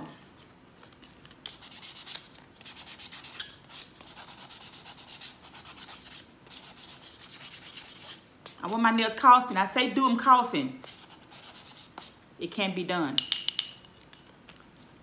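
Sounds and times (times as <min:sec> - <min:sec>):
nail file scraping acrylic nail: 0:00.8 - 0:08.8, 0:10.8 - 0:12.2.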